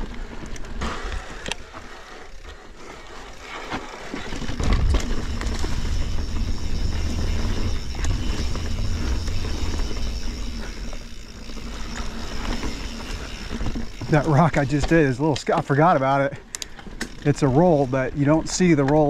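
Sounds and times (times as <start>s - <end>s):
bike chain rattling: 0.4s - 19.0s
low rumble: 4.5s - 14.3s.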